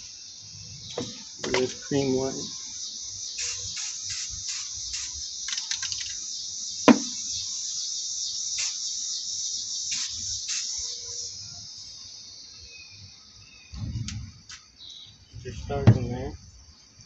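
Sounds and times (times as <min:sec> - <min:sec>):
spray-paint can hissing: 0:03.2 - 0:11.2.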